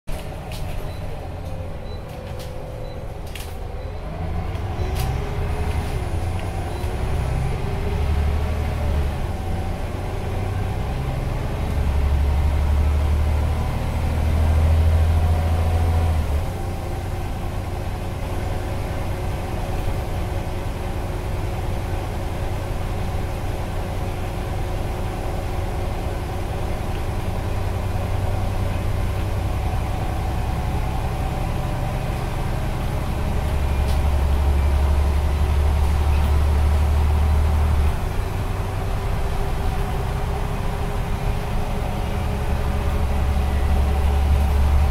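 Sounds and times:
bus engine droning: 0.1s - 44.9s.

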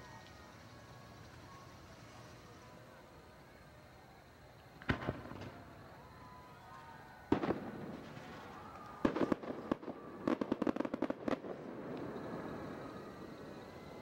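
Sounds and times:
firecrackers bangs and pops: 4.8s - 5.8s, 7.3s - 12.9s.

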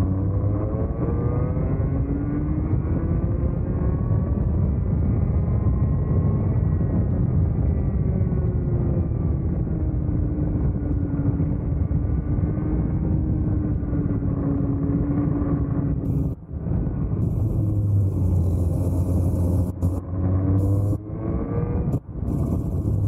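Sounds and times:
kart engine running hard: 0.0s - 23.0s
heavy low rumble: 16.0s - 23.0s.

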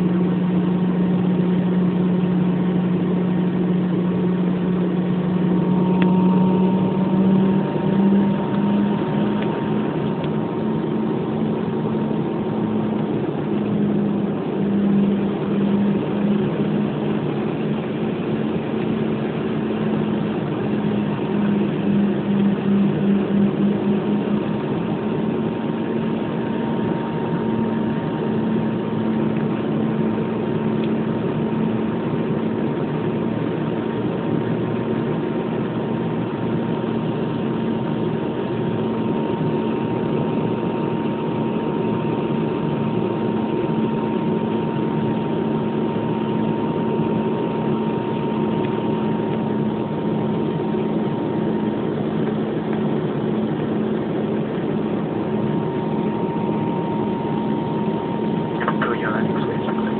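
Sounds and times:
aircraft engine drone in cabin: 0.0s - 59.9s
thin high whine: 54.8s - 59.9s.

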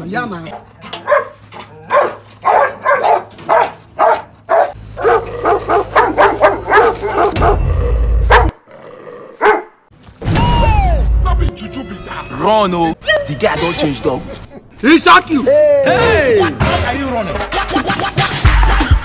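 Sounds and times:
dog barking: 0.5s - 7.6s, 8.3s - 8.6s, 9.4s - 9.7s.

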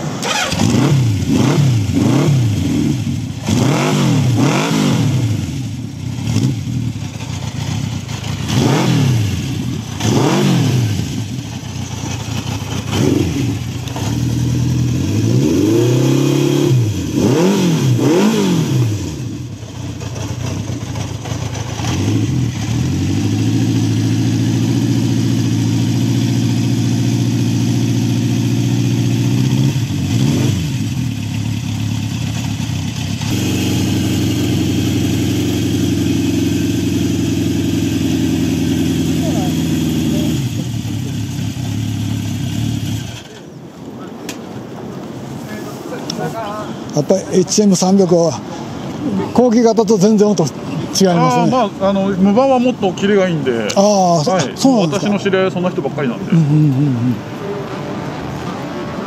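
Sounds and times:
motorcycle engine throttle blips: 5.1s - 16.0s
motorcycle engine idling: 5.3s - 15.3s, 19.0s - 43.6s.

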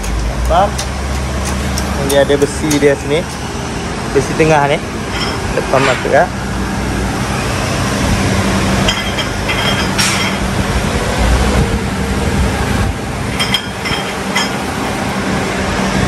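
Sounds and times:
workshop machinery humming: 0.0s - 16.0s
metal-on-metal clinks: 5.1s - 6.0s, 8.8s - 10.6s, 13.3s - 15.6s.

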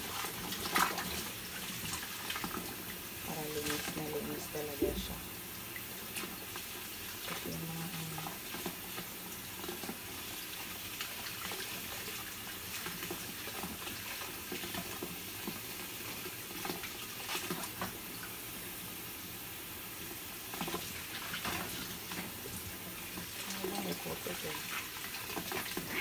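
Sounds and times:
faucet running into water: 19.5s - 26.0s.

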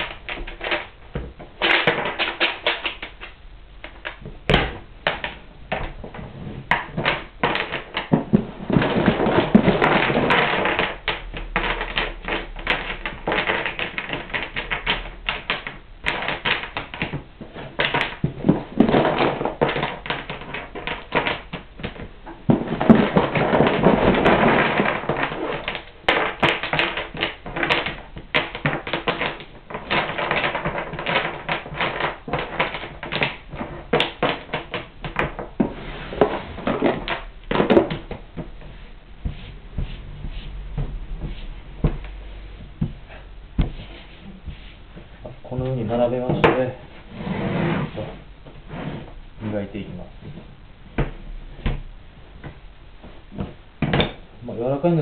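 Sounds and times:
wooden blocks clicking on board: 1.6s - 6.0s, 6.7s - 38.6s.

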